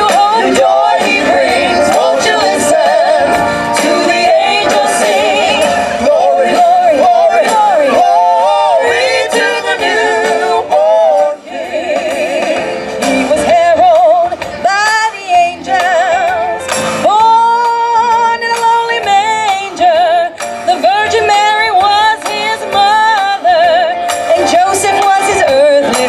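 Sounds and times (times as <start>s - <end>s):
musical accompaniment: 0.0s - 26.0s
people singing with vibrato: 0.0s - 26.0s.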